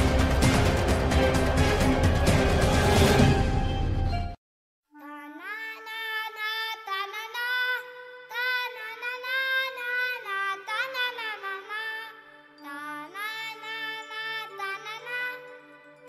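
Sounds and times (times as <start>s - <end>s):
high voice singing slow melody: 5.0s - 16.0s.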